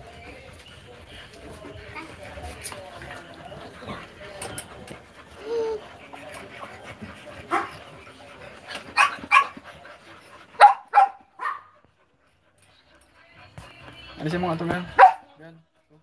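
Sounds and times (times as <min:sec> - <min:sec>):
puppies yapping: 0:00.1 - 0:11.8.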